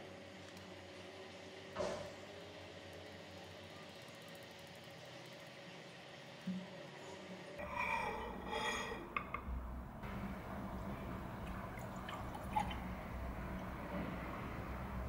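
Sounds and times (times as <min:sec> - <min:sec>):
milk pouring into glass: 0:10.7 - 0:13.8.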